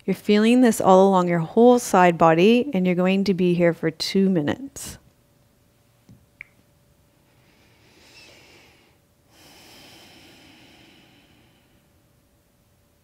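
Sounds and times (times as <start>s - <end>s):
woman breathing deeply: 7.3s - 12.0s.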